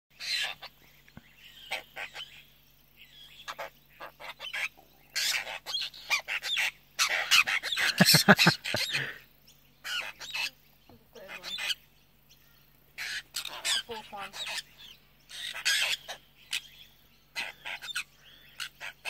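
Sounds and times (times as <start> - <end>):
birds chattering calls: 0.1 - 19.0.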